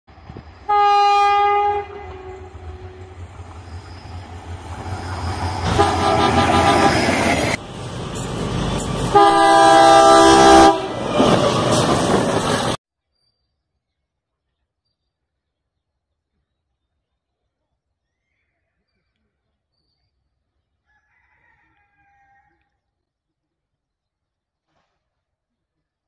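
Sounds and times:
passing train: 0.1s - 12.8s
train horn blasts: 0.6s - 3.4s, 5.5s - 7.6s, 9.0s - 12.1s.

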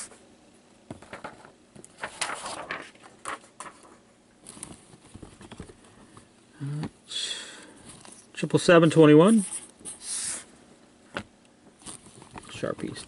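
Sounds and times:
paper rustling: 1.0s - 5.9s.

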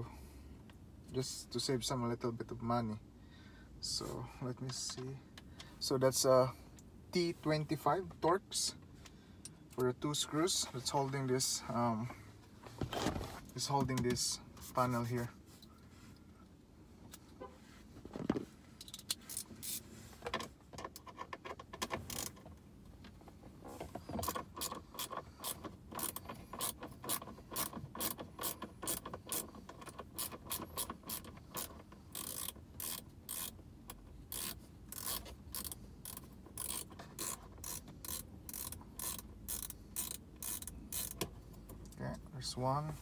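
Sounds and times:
hand ratchet clicking: 18.8s - 19.8s, 21.0s - 22.4s, 24.1s - 42.0s.

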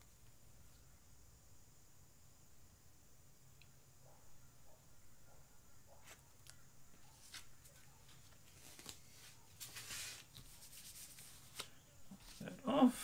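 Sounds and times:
faint clicks and rustles: 5.9s - 12.5s.

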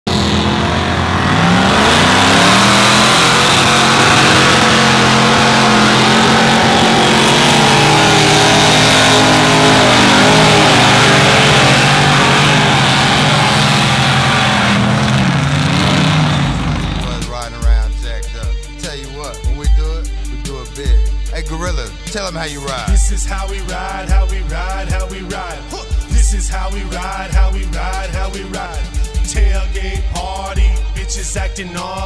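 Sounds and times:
off-road vehicle engine revving: 0.0s - 32.0s.

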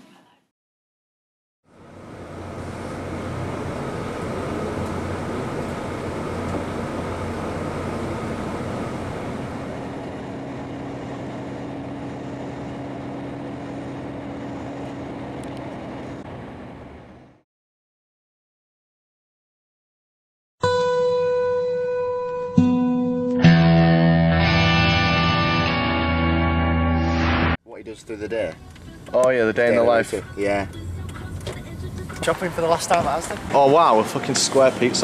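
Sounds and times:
road noise inside moving vehicle: 1.7s - 17.4s, 27.8s - 35.0s.

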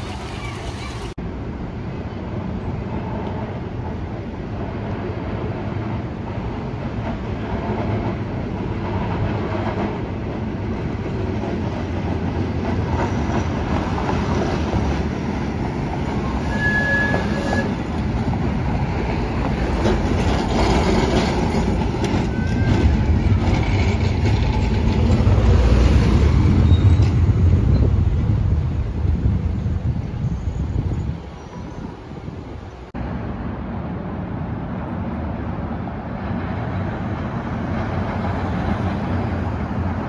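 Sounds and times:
streetcar wheels rumbling on rails: 0.0s - 40.0s
short high squeal: 16.3s - 17.8s.

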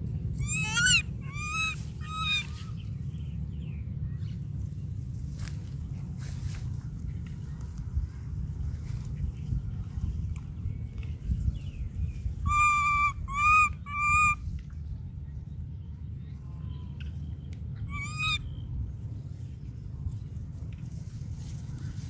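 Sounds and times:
young monkey calling: 0.4s - 2.8s, 12.4s - 14.4s, 17.9s - 18.5s.

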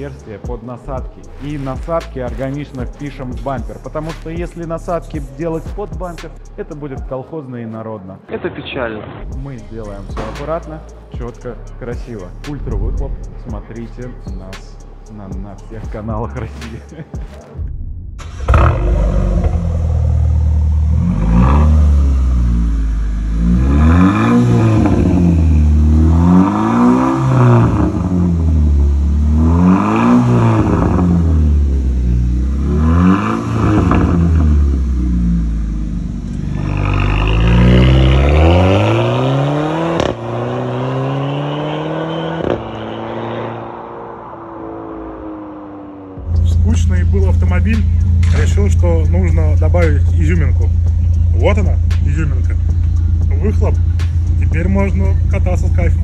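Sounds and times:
car accelerating away: 18.2s - 56.0s
car engine revving: 18.2s - 56.0s.

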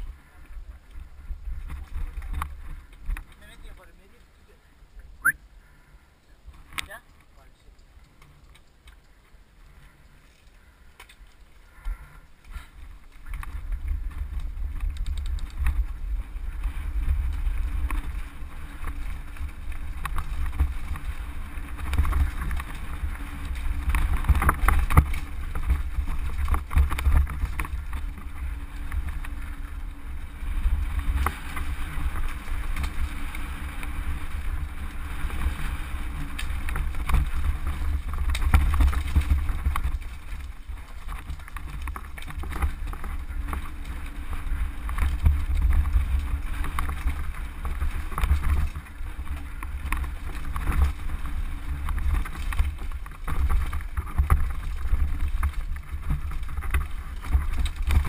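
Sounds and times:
wind rumble on microphone: 0.0s - 4.2s, 7.7s - 58.0s
mountain bike rattling: 0.0s - 4.9s, 5.6s - 58.0s.

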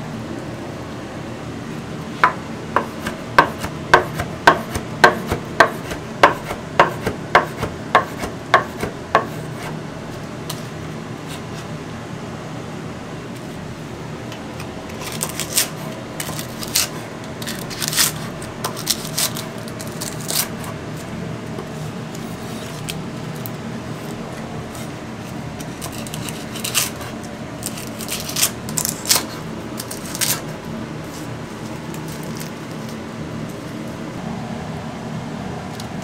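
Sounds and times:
steady background hum: 0.0s - 36.0s
knife chopping on wooden board: 2.2s - 9.7s.

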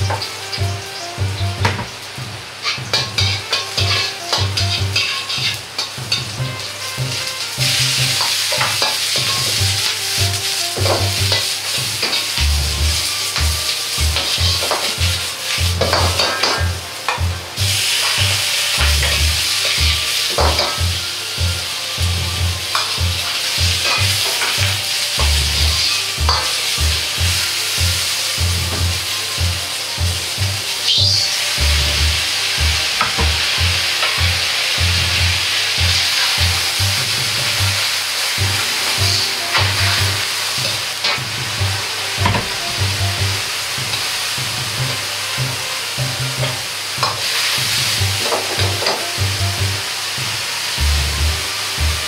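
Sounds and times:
food sizzling in a wok: 0.0s - 52.0s
metal ladle scraping a pan: 2.6s - 12.4s, 22.7s - 24.9s, 25.7s - 26.8s.

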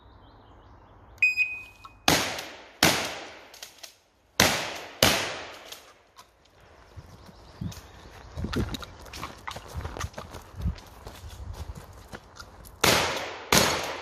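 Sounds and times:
shot timer beep: 1.2s - 2.0s
shotgun shots: 2.1s - 3.6s, 4.4s - 5.8s, 12.8s - 14.0s.

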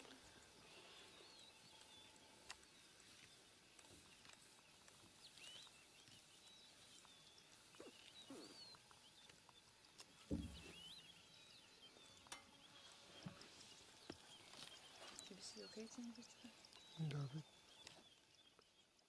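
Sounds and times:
faint bird chirps and whistles: 5.2s - 19.0s
low thump: 10.3s - 10.8s.

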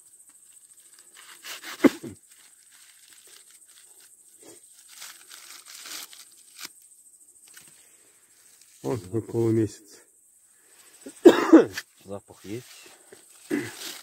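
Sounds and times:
foil crinkling and tearing: 0.4s - 6.8s, 12.4s - 14.0s.

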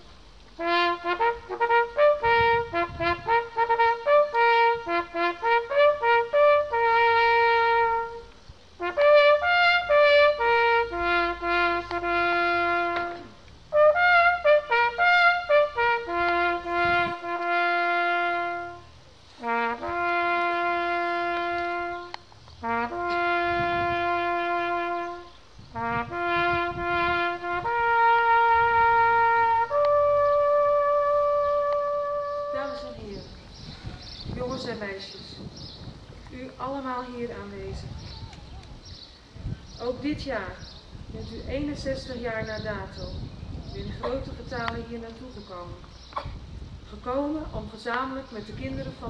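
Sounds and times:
solo trumpet melody: 0.6s - 33.2s.

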